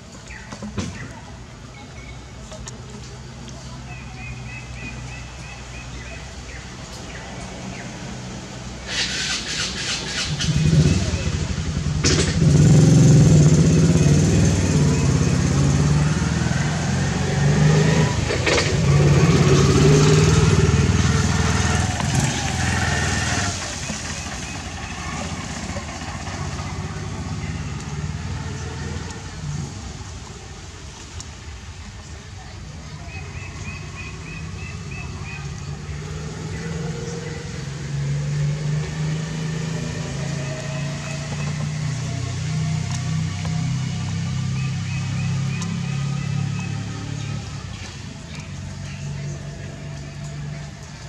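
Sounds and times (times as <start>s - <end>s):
engine running: 2.0s - 31.1s.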